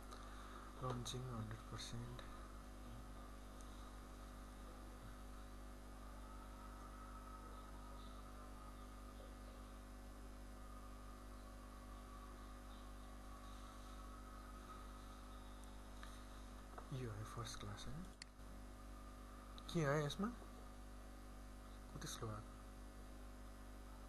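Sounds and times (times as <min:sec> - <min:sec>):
faint mains hum: 0:00.0 - 0:24.0
low hiss: 0:00.0 - 0:24.0.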